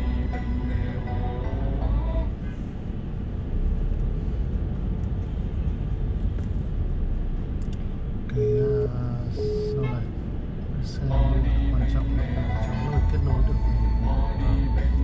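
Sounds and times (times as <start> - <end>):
music: 0.0 - 2.4, 11.0 - 15.0
car engine and tyre rumble: 0.0 - 15.0.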